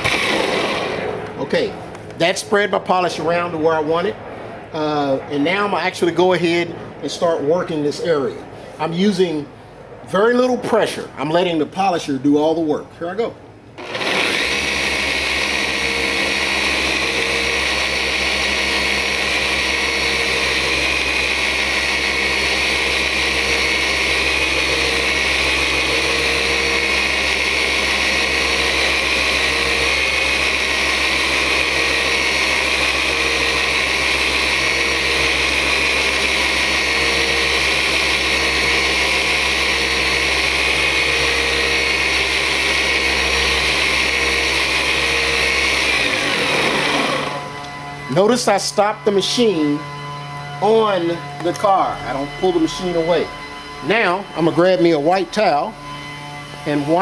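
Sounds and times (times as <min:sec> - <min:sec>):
car polisher running: 0:00.0 - 0:01.7, 0:13.8 - 0:57.0.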